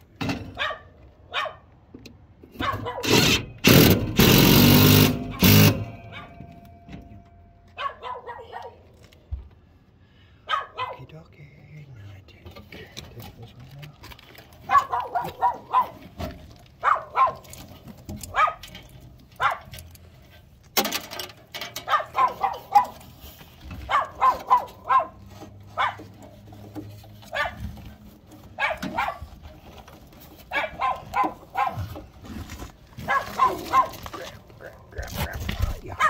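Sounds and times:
dog barking: 0.6s - 1.7s, 2.6s - 3.2s, 5.3s - 6.5s, 7.7s - 8.9s, 10.4s - 11.1s, 14.6s - 16.0s, 16.8s - 17.5s, 18.3s - 18.7s, 19.4s - 19.7s, 21.8s - 23.0s, 23.8s - 26.1s, 27.3s - 27.7s, 28.5s - 29.3s, 30.5s - 32.0s, 33.0s - 36.0s.

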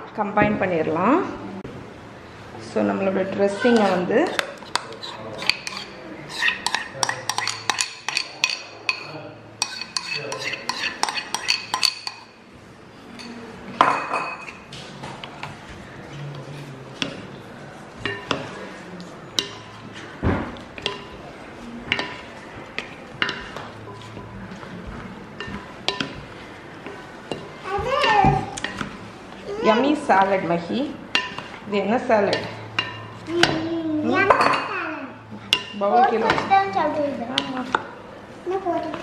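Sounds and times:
metal spoon scraping metal bowl: 3.6s - 12.3s
wooden spatula tossing salad: 19.4s - 30.3s.

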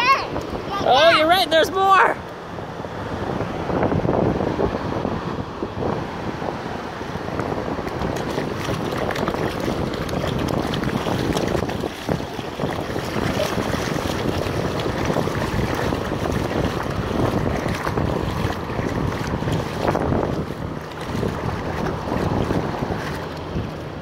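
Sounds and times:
wind buffeting microphone: 2.8s - 24.0s
small waves on beach: 4.5s - 24.0s.

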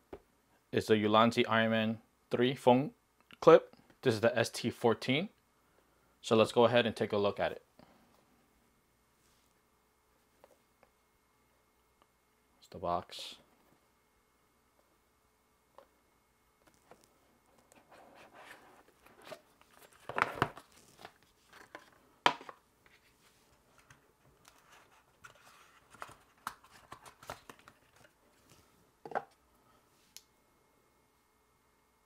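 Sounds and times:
cardboard packaging rustling: 22.9s - 28.6s.

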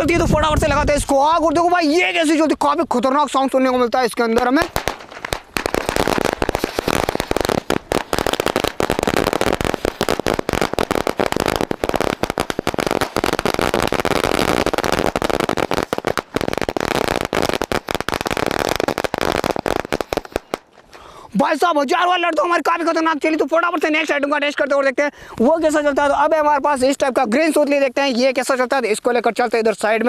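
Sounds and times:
firecracker string bangs: 4.6s - 18.0s.

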